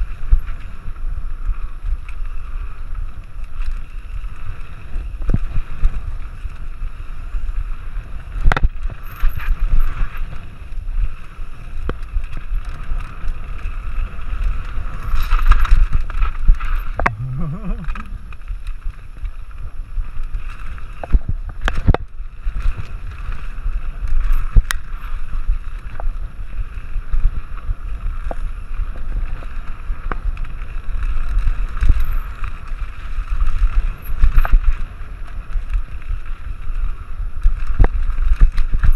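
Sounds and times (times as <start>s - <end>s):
bike tyres rumbling on dirt: 0.0s - 38.9s
wind on microphone: 11.6s - 38.9s.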